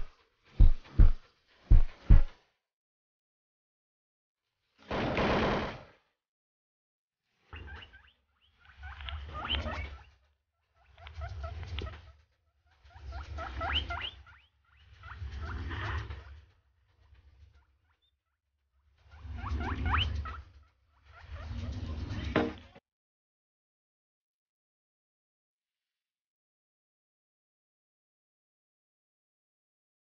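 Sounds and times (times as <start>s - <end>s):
birds chirping and squeaking: 7.5s - 10.2s, 10.8s - 16.3s, 19.1s - 22.8s.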